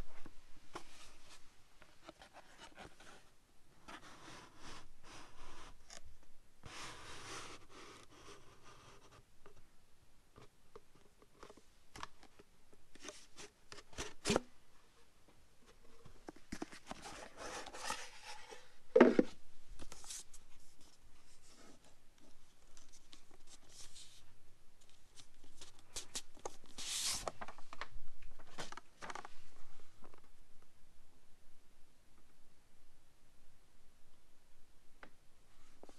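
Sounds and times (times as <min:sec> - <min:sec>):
paper rustling: 0:25.1 - 0:27.8.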